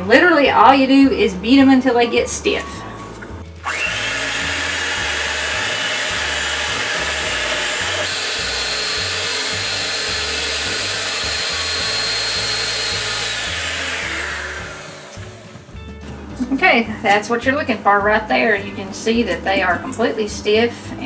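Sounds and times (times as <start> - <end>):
electric hand mixer whipping: 3.6 - 15.7.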